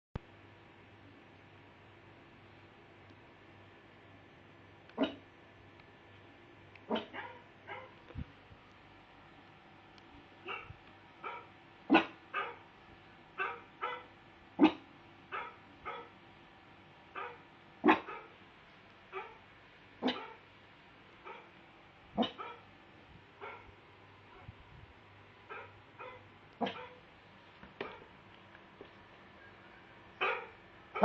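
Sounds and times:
dog barking: 0:05.0 - 0:05.2, 0:06.9 - 0:08.0, 0:10.4 - 0:12.6, 0:13.4 - 0:16.1, 0:17.1 - 0:18.3, 0:19.1 - 0:19.4, 0:20.0 - 0:20.4, 0:21.2 - 0:21.5, 0:22.2 - 0:22.7, 0:23.4 - 0:23.7, 0:25.5 - 0:27.0, 0:27.8 - 0:28.1, 0:30.2 - 0:31.0.

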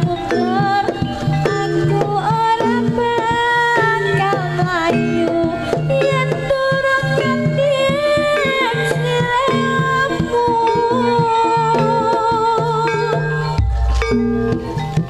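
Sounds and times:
hand drum strokes: 0:00.0 - 0:15.0
sliding melody line: 0:13.4 - 0:15.0.

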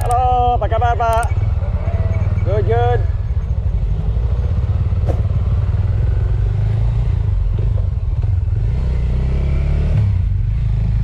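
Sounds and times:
sharp click: 0:00.0 - 0:00.2
motorcycle engine running: 0:00.0 - 0:09.4.

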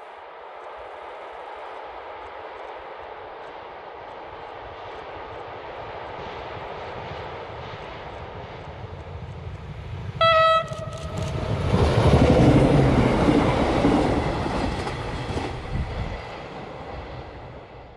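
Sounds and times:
train engine rumble: 0:00.0 - 0:17.9
train wheels passing: 0:00.0 - 0:17.9
train horn blast: 0:10.2 - 0:11.5.

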